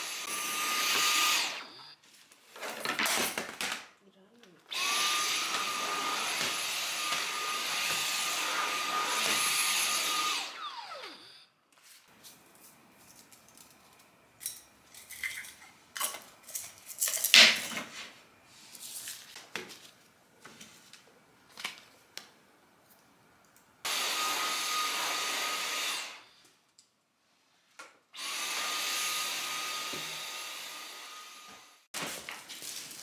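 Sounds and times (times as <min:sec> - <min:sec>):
vacuum cleaner high whine: 0:00.0 - 0:02.0, 0:04.7 - 0:11.4, 0:23.9 - 0:26.4, 0:28.2 - 0:31.8.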